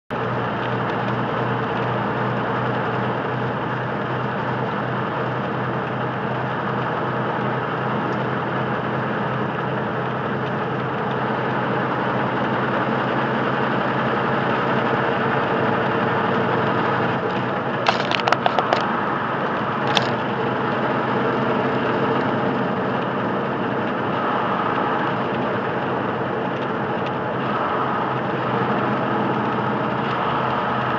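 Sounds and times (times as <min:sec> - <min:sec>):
truck engine and road noise: 0:00.0 - 0:30.9
sharp clicks: 0:17.3 - 0:18.9, 0:19.8 - 0:20.2.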